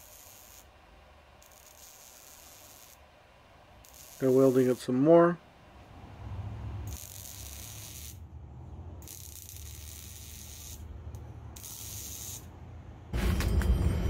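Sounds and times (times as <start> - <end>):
welder arc hissing and crackling: 0.0 - 0.7, 1.4 - 3.0, 3.8 - 5.2, 6.9 - 8.2, 9.0 - 10.9, 11.6 - 12.5
deep exhaust rumble: 5.7 - 6.9.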